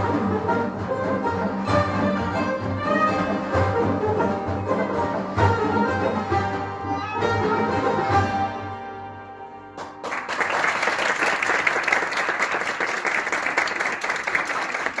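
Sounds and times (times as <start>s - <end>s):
audience applause: 9.8s - 15.0s.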